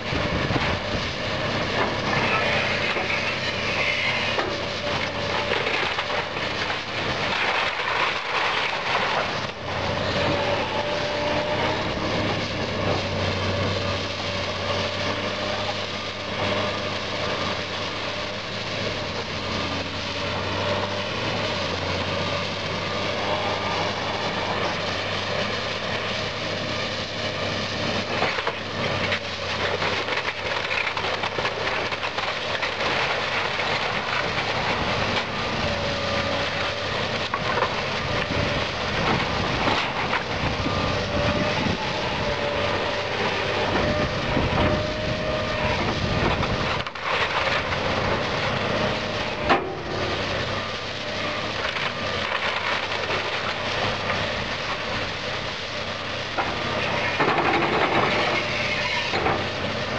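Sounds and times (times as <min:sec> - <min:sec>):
excavator diesel engine under load: 0:00.0 - 0:59.9
wood cracking: 0:01.8 - 0:09.6, 0:28.0 - 0:49.9, 0:51.1 - 0:55.0
debris crashing down: 0:05.0 - 0:09.6.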